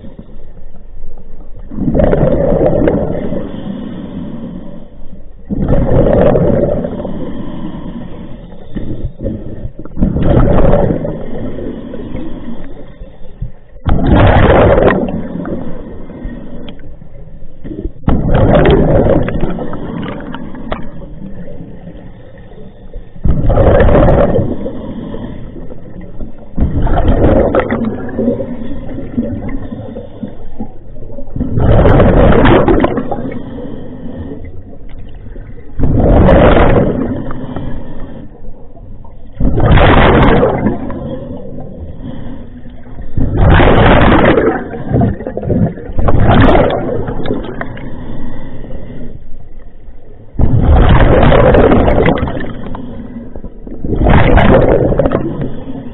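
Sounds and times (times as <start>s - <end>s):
exhaled bubbles rushing: 1.6s - 3.7s, 5.5s - 7.4s, 8.8s - 12.6s, 13.7s - 16.9s, 17.6s - 22.2s, 23.2s - 33.6s, 34.5s - 37.7s, 38.4s - 42.2s, 42.8s - 47.9s, 50.4s - 55.9s
diver breathing through regulator: 2.6s - 5.2s, 5.8s - 13.8s, 19.2s - 30.8s, 31.6s - 38.8s, 40.6s - 43.4s, 47.0s - 49.9s, 52.2s - 53.8s.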